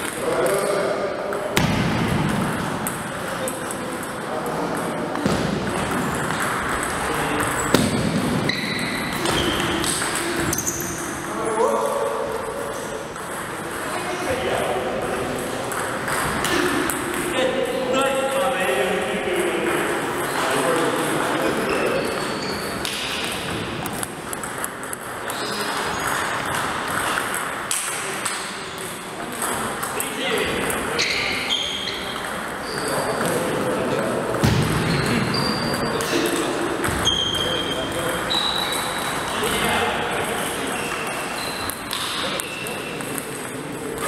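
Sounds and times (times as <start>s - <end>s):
table tennis ball clicking: 22.8s - 30.8s.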